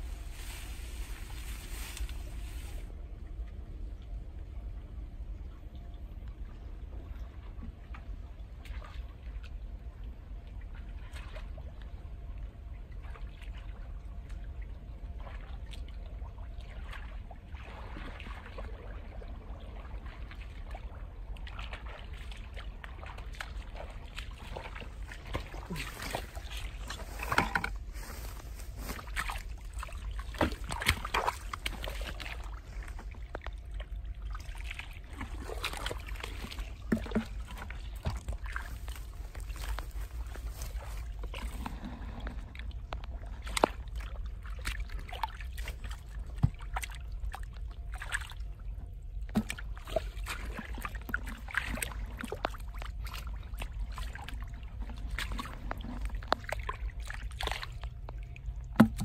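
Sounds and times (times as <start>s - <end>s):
low steady rumble: 0.0s - 59.0s
water splashing and sloshing: 0.0s - 59.0s.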